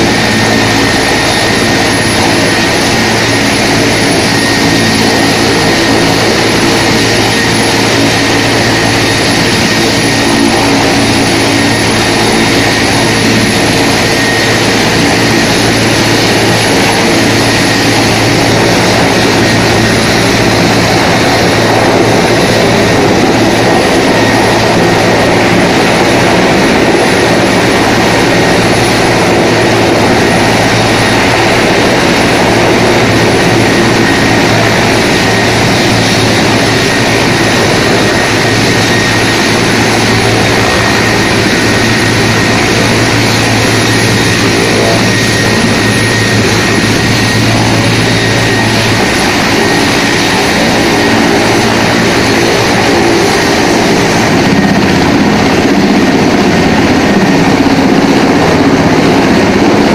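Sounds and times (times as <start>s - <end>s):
helicopter engines whining: 0.0s - 59.9s
helicopter rotors turning: 0.0s - 59.9s.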